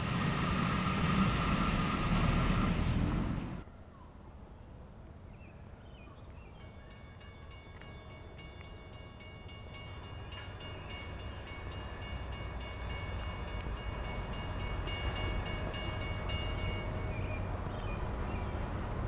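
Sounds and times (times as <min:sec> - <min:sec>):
train rumble: 0:00.0 - 0:03.7, 0:06.6 - 0:19.0
high-pitched ringing tones: 0:06.5 - 0:17.5.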